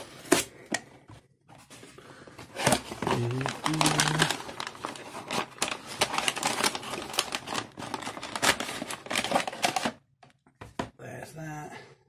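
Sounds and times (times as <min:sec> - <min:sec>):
cardboard box rustling: 0:01.5 - 0:09.9
tissue paper crinkling: 0:02.5 - 0:09.9.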